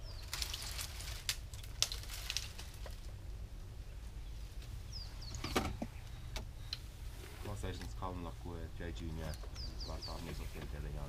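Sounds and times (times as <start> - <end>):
branches cracking and snapping: 0.0 - 3.3
steady low hum: 2.5 - 11.0.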